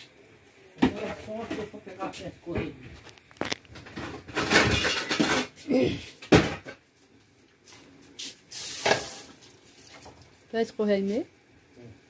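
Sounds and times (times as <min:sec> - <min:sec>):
pots and utensils clattering: 0:03.7 - 0:05.6, 0:06.2 - 0:06.8, 0:08.8 - 0:10.2.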